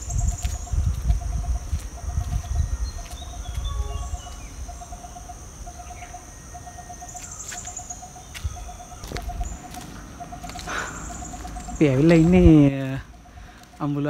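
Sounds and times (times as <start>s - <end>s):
low rumble on microphone: 0.0s - 5.8s
bird chirps: 0.0s - 14.0s
high-pitched insect drone: 0.0s - 14.0s.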